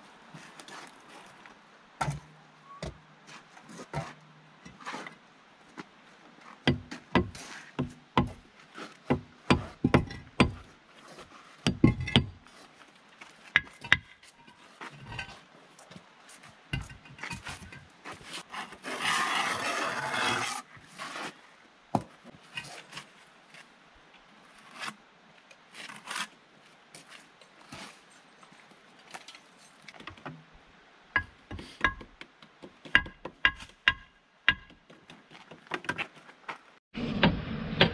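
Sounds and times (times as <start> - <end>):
hammer knocking on concrete block: 9.1 - 10.6, 32.8 - 34.8.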